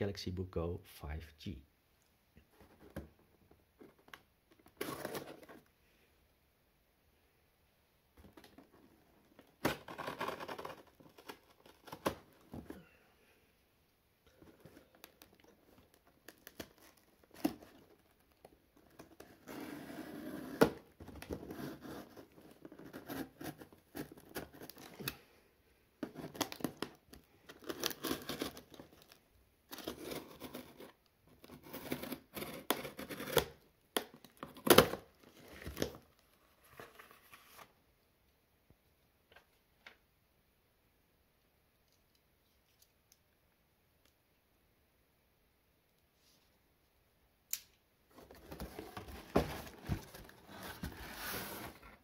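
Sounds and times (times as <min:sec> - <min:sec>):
cardboard tearing: 0:04.7 - 0:05.6, 0:09.6 - 0:12.3, 0:26.0 - 0:33.6, 0:48.1 - 0:51.8
knife cutting cardboard: 0:19.0 - 0:25.1, 0:29.8 - 0:33.6, 0:48.2 - 0:51.8.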